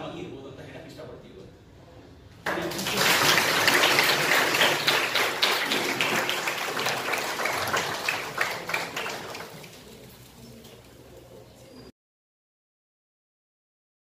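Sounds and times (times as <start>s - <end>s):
audience applauding: 2.5s - 10.2s.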